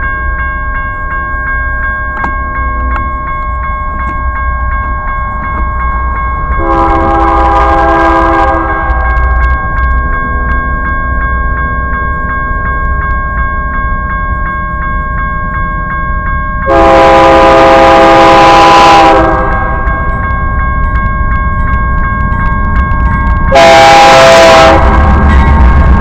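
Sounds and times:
crossing bell ringing: 0.0 - 26.0
train rumbling: 0.0 - 26.0
locomotive air horn: 6.6 - 9.3, 16.7 - 19.9, 23.5 - 25.3.

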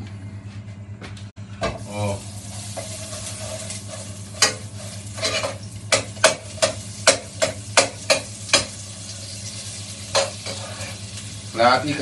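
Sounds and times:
butter sizzling in a pan: 1.8 - 12.0
utensil scraping a frying pan: 2.4 - 11.3.

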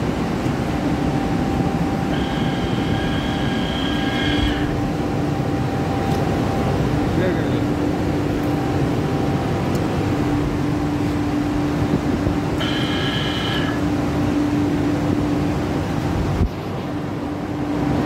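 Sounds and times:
electric motors humming: 0.0 - 16.4
high whine: 0.0 - 18.0.

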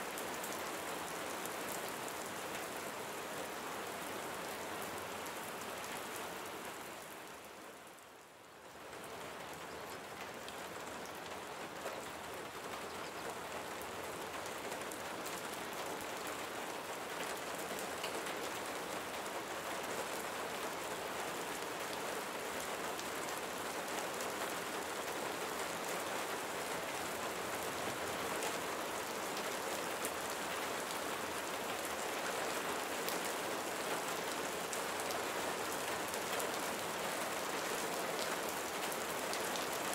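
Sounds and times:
steady rain falling: 0.0 - 39.9.

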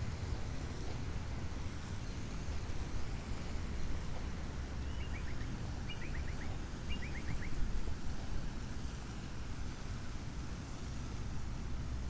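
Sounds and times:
city traffic rumble: 0.0 - 12.0
bird chirping call: 4.8 - 7.5.

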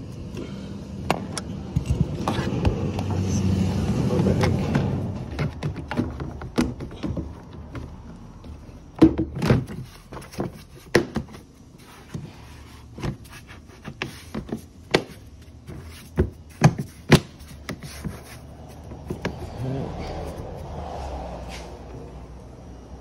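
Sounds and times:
plastic trim and tools knocking: 4.2 - 8.1.

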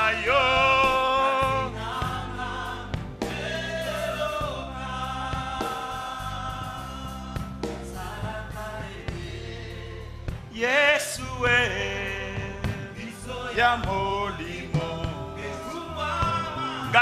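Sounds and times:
man singing lead: 0.0 - 2.1, 10.5 - 17.0
choir holding long notes: 0.0 - 11.0, 12.0 - 17.0
instrumental backing with bass: 0.0 - 17.0.

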